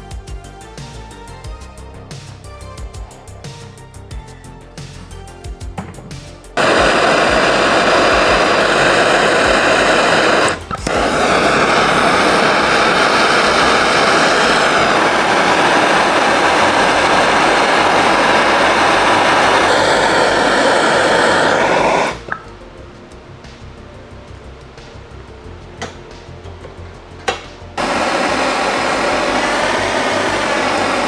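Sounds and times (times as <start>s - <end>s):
gas torch flame hissing: 6.5s - 22.4s, 27.8s - 31.0s.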